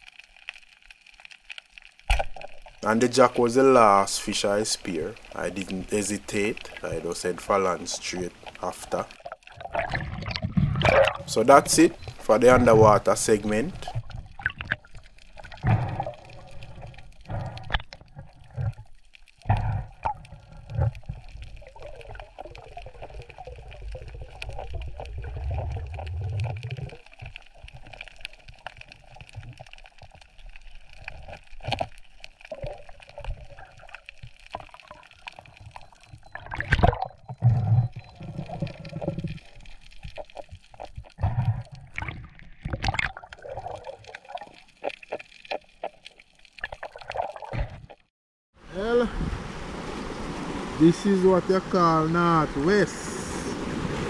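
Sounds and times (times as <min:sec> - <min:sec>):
water splashes: 0:00.0 - 0:54.0
seawater sloshing and gurgling: 0:07.8 - 0:12.8, 0:32.5 - 0:46.0.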